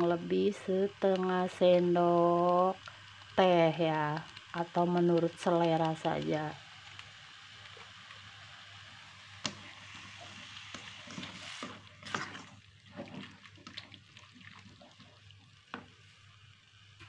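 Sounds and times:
meat sizzling in a pan: 0.0s - 17.0s
spatula scraping a pan: 9.5s - 13.8s.

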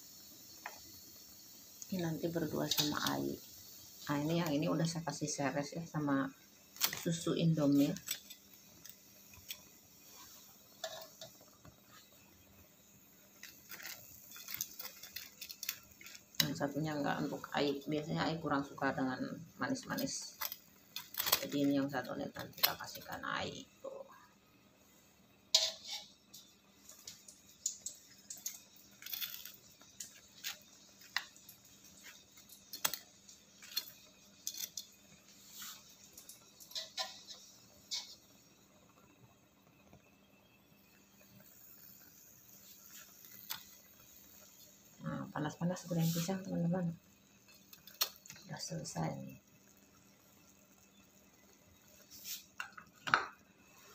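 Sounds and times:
faint steady hum: 0.0s - 53.9s
faint handling clicks and taps: 52.2s - 53.5s.

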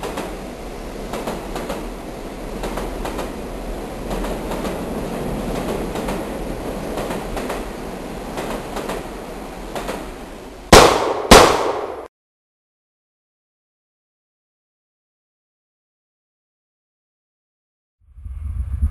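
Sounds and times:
steady rumbling noise: 0.0s - 12.1s, 18.0s - 18.9s
loud sharp bangs: 10.7s - 12.1s.

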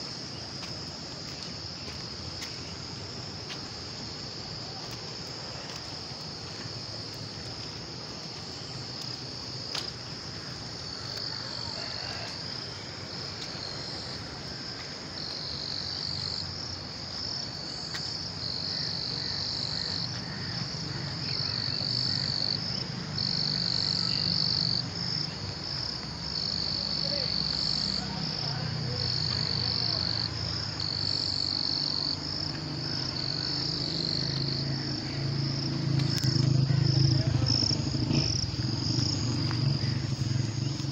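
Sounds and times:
shrill insect chorus pulsing: 0.0s - 40.9s
frogs croaking: 8.4s - 40.9s.

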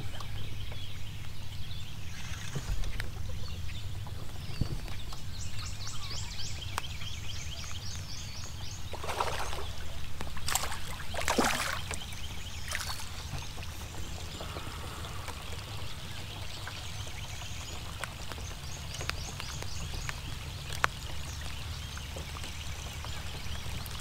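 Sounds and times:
low steady hum: 0.0s - 24.0s
light ticks: 6.7s - 7.0s, 14.3s - 24.0s
water splashing: 8.8s - 24.0s.

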